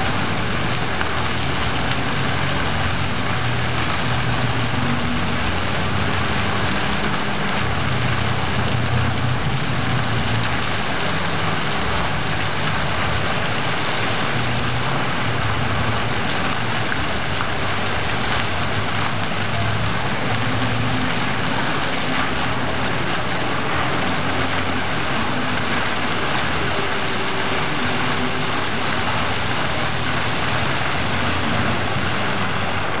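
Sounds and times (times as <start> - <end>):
fountain water splashing: 0.0 - 33.0
low uneven rumble: 0.0 - 33.0.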